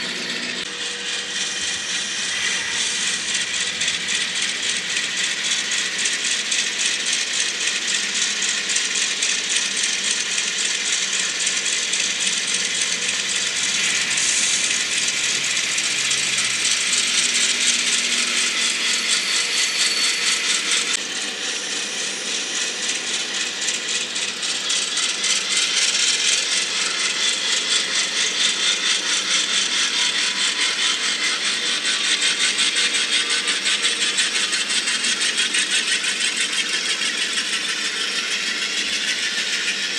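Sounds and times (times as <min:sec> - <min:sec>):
model train wheels clicking: 0:00.6 - 0:39.9.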